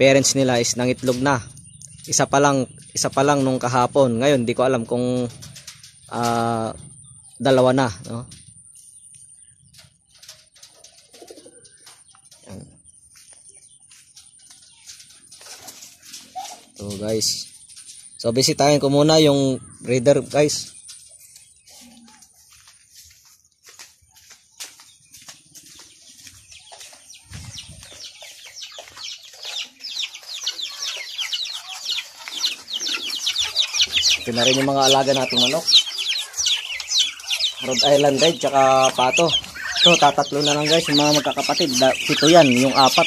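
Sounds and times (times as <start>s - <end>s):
chickens clucking: 0.0s - 43.0s
chicks peeping: 0.0s - 43.0s
pigeons cooing: 9.7s - 12.8s, 27.3s - 43.0s.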